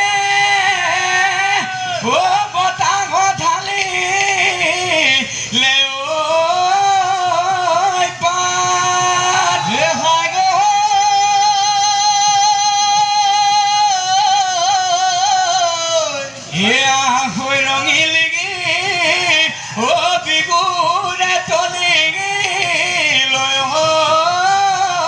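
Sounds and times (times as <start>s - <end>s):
men singing: 0.0s - 25.0s.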